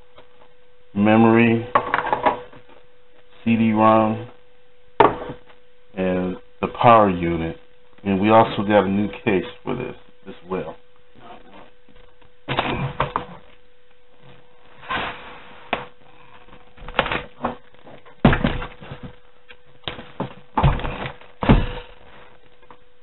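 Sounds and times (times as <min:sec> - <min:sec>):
thumps and knocks on a table: 0:05.0 - 0:05.5.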